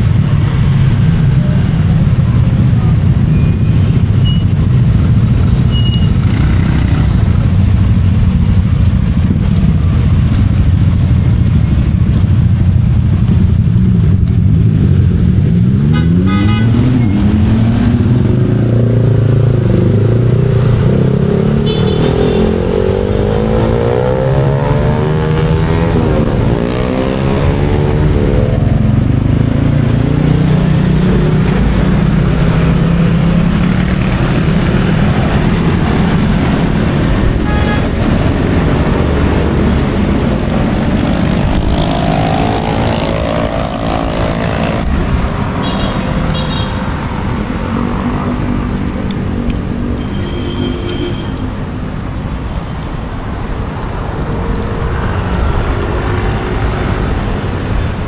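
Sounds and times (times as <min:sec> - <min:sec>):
engines revving as vehicles accelerate: 0:00.0 - 0:50.3, 0:51.4 - 0:58.0
car and motorcycle engines passing: 0:00.0 - 0:50.5, 0:51.4 - 0:58.0
short horn beep: 0:50.0 - 0:51.5.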